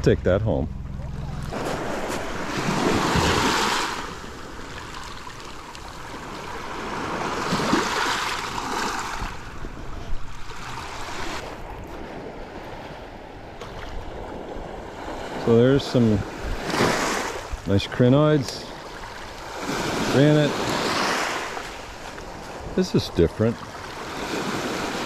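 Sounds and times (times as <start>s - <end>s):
small waves washing on rocky shore: 1.5s - 9.8s, 15.0s - 25.0s.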